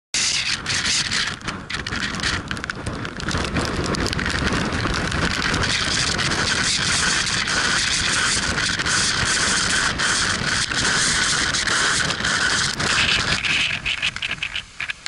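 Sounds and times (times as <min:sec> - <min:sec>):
rain and wind on microphone: 0:00.2 - 0:15.0
raindrops ticking on camera: 0:00.8 - 0:09.0.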